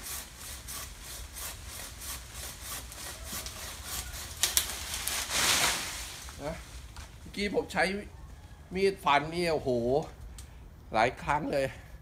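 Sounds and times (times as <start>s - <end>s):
pruning saw rasping: 0.0s - 5.8s
rush of falling leaves: 2.9s - 7.2s
branch cracking: 2.9s - 7.3s.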